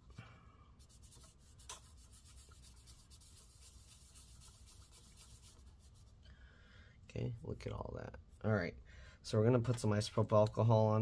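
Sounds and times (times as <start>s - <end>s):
paper towel rubbing on metal: 0.8s - 6.2s.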